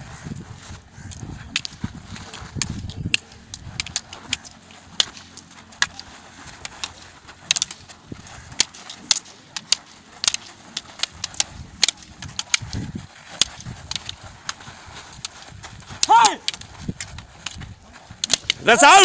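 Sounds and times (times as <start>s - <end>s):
wooden staffs clacking: 1.1s - 19.0s.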